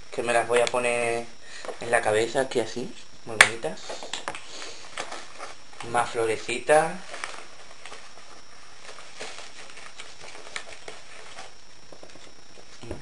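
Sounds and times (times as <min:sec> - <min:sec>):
steady background hiss: 0:00.0 - 0:13.0
paper bag rustling: 0:04.6 - 0:12.3.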